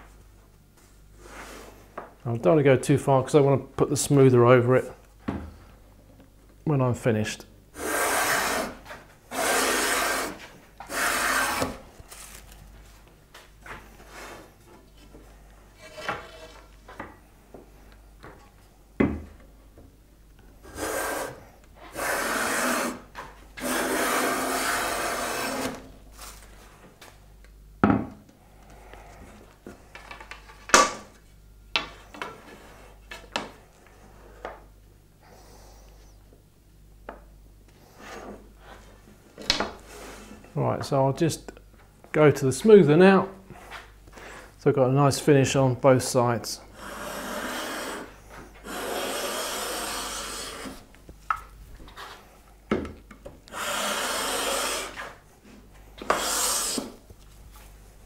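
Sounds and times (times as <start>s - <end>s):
hand plane rasping on wood: 7.8s - 11.8s, 20.7s - 23.0s, 23.6s - 25.7s, 46.8s - 50.8s, 53.5s - 55.1s, 56.0s - 56.9s
knocks of wood and tools: 19.0s - 19.4s.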